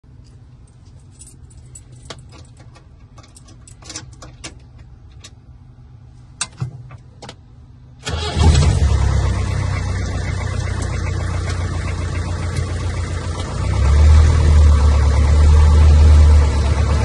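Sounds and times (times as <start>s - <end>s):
light clicks and rattles: 0.2s - 5.4s
car engine running and revving: 8.3s - 17.0s.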